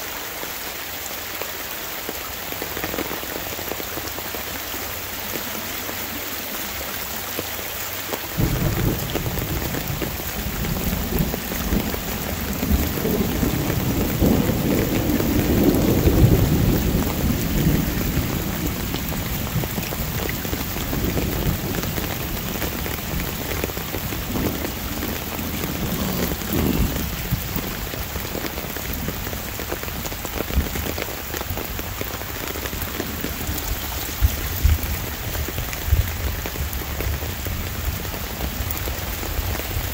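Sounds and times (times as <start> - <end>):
steady rain falling: 0.0 - 39.9
thunder rolling: 8.4 - 31.0.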